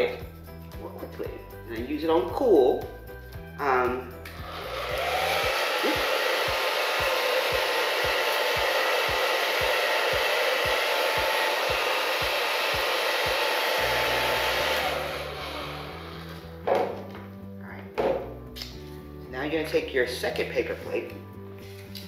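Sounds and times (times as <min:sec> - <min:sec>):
hair dryer blowing: 0:04.2 - 0:16.6.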